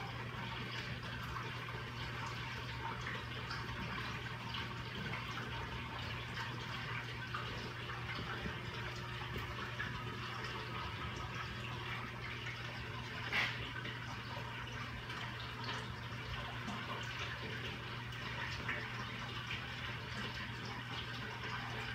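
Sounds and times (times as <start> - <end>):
low pump hum: 0.0 - 21.9
water trickling and bubbling: 0.0 - 21.9.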